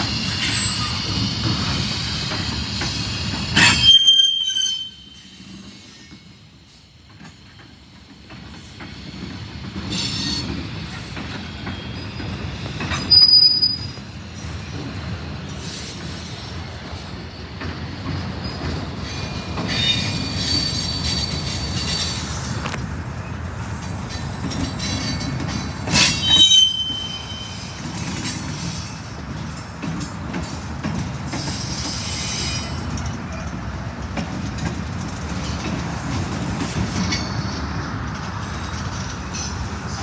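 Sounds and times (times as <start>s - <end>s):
train cars rolling: 0.0s - 40.0s
wheels squealing: 24.5s - 29.0s.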